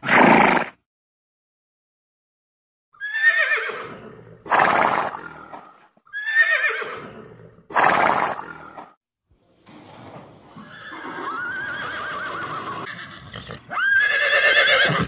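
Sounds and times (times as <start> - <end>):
horse whinnying: 0.0 - 0.8, 3.0 - 5.3, 6.1 - 8.6, 10.6 - 15.0.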